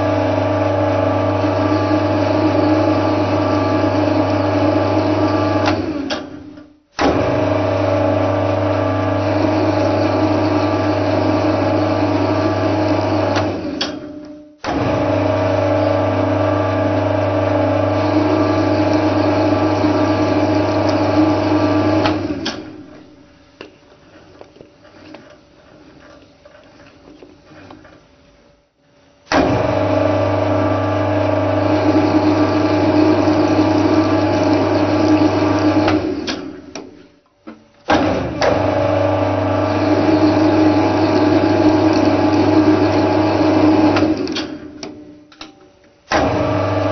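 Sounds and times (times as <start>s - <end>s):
lathe humming with gear whine: 0.0s - 6.1s, 7.4s - 13.8s, 14.8s - 23.1s, 29.6s - 36.8s, 38.4s - 44.4s.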